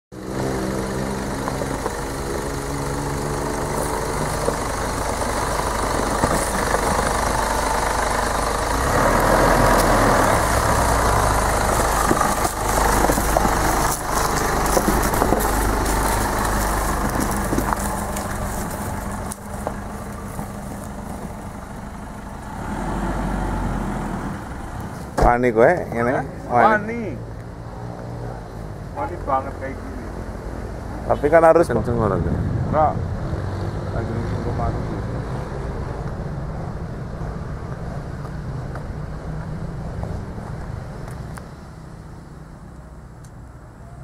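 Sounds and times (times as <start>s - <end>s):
car engine idling: 0.1s - 33.1s.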